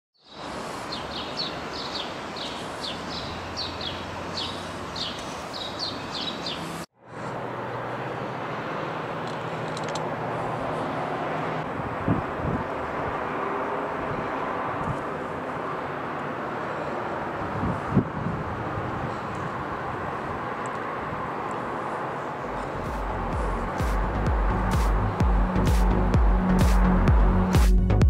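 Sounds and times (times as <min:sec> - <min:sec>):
small birds chirping: 0:00.2 - 0:06.9.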